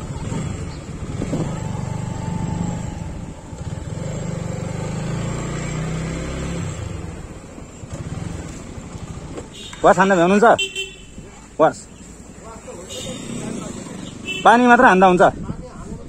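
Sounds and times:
motorcycle engine running: 0.0s - 11.4s.

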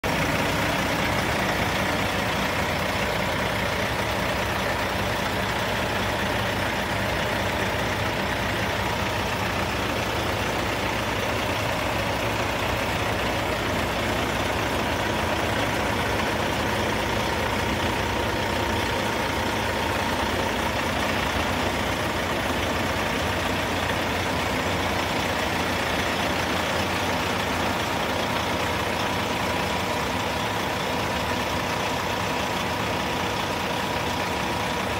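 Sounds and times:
diesel truck engine idling: 0.0s - 34.9s.

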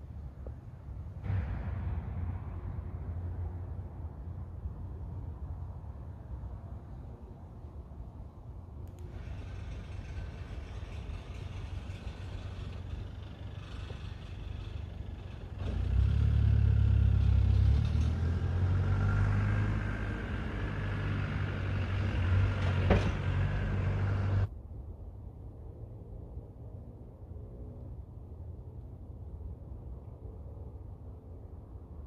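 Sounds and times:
low mechanical rumble: 0.0s - 25.7s.

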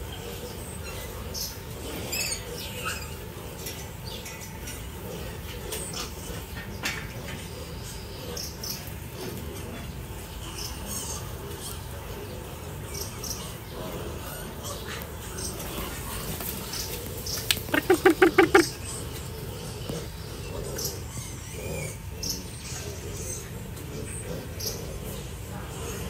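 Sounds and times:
piglets squeaking: 17.5s - 19.1s.

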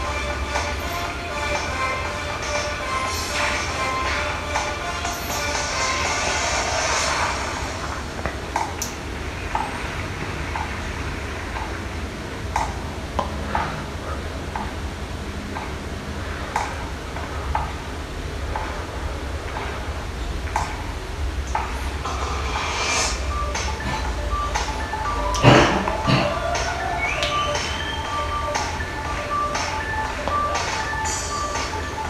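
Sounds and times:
sparse ticking beat: 0.0s - 6.1s, 21.4s - 32.0s
low hum and hiss: 0.0s - 32.0s.

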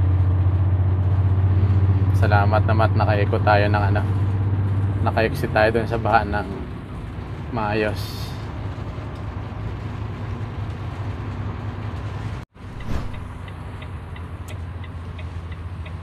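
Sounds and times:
low engine drone: 0.0s - 16.0s
tyres hissing on wet road: 6.4s - 12.4s.

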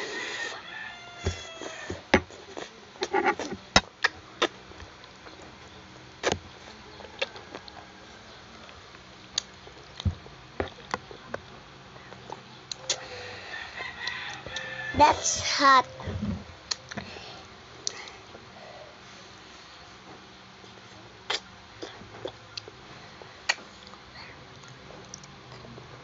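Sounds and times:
eating noises with forks: 1.3s - 5.5s.

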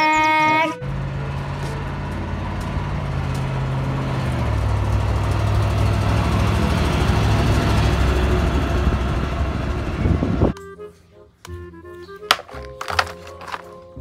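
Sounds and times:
diesel crane truck driving past: 0.8s - 10.5s.

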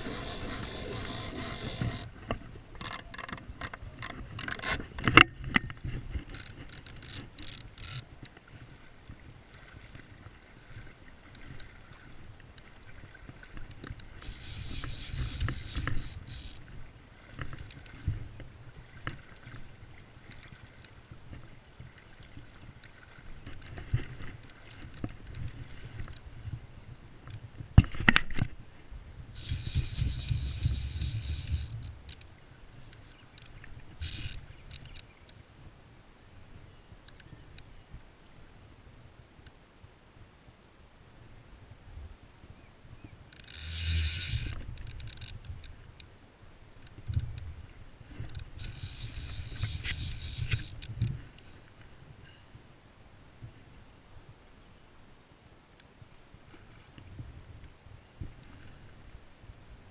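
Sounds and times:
fly reel ratcheting: 0.0s - 2.2s, 2.8s - 5.2s, 6.3s - 8.1s, 13.8s - 16.7s, 29.4s - 32.3s, 33.4s - 35.1s, 43.4s - 45.7s, 48.3s - 51.6s
knocks from handling rod and reel: 0.0s - 8.4s, 13.3s - 16.6s, 29.4s - 32.3s, 43.3s - 45.8s, 48.2s - 51.5s.

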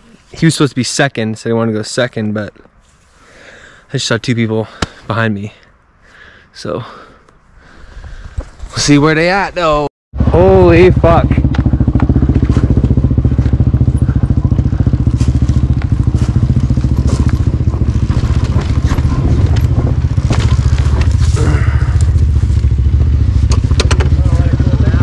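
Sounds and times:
dirt bike engine: 10.2s - 25.0s
knocks and clatter: 22.9s - 24.2s.

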